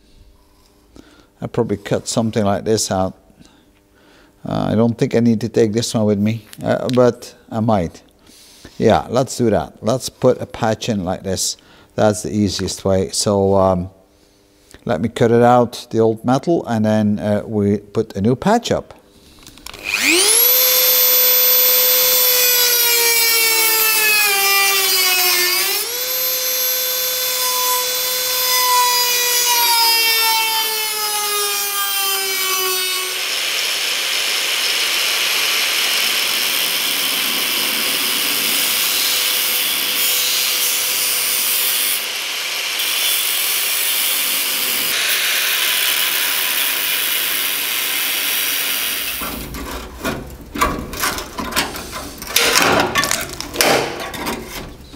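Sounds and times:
rotary tool whining cutting steel: 19.7s - 49.5s
angle grinder cutting steel: 19.8s - 49.5s.

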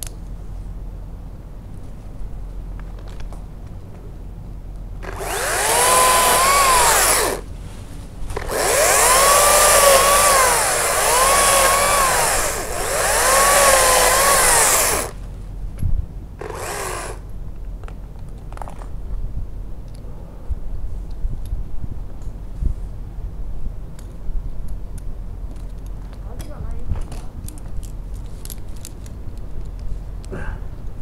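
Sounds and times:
chainsaw cutting branches: 5.0s - 7.6s, 8.2s - 15.2s, 16.4s - 17.2s.

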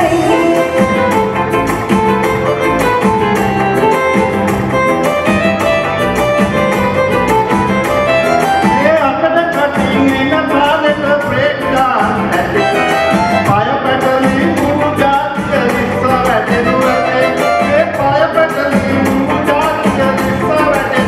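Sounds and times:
man singing into a microphone: 0.0s - 1.4s, 8.7s - 21.0s
musical accompaniment with steady beat: 0.0s - 21.0s.

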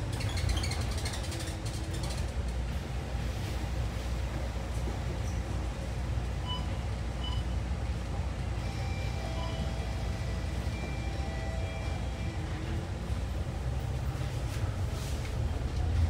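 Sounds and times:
bus engine and road rumble: 0.0s - 16.0s
faint short beeps: 6.4s - 7.6s.

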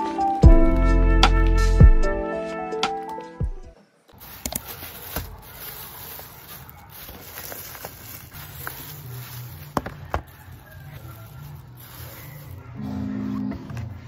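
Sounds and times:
plastic bag rustling: 4.1s - 12.8s.

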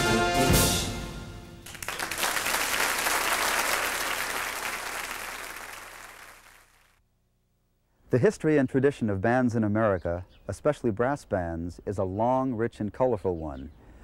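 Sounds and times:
brass band chord: 0.0s - 1.6s
audience applauding: 1.6s - 6.9s.

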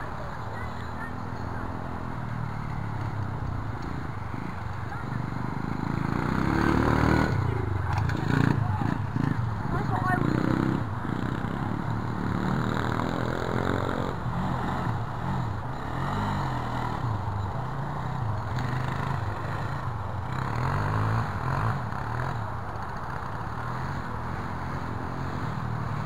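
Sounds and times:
pit bike engine: 0.0s - 26.0s
quad engine revving: 4.9s - 17.1s.

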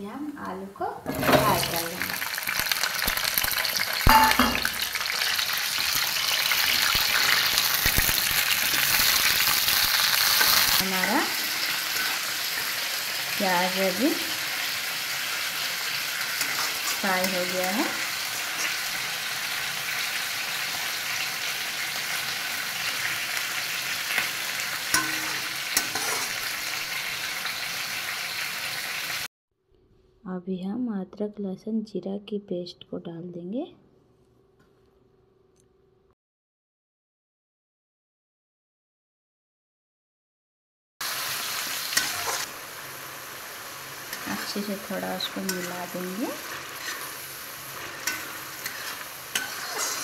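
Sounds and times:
potatoes sizzling in hot oil: 1.1s - 29.3s, 41.0s - 50.0s
spatula knocking on pan: 4.1s - 4.7s
spatula stirring: 8.7s - 12.8s, 16.0s - 17.6s, 24.9s - 26.3s, 44.0s - 50.0s.

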